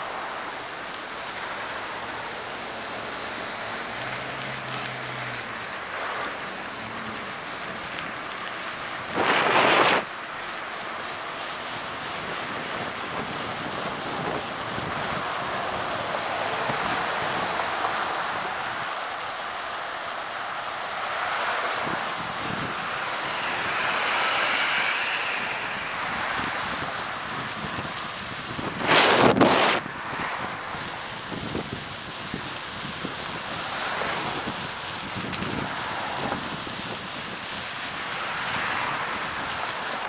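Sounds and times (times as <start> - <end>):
road noise: 0.0 - 40.0
wind rushing over microphone: 7.7 - 10.1, 11.8 - 19.6, 20.2 - 40.0.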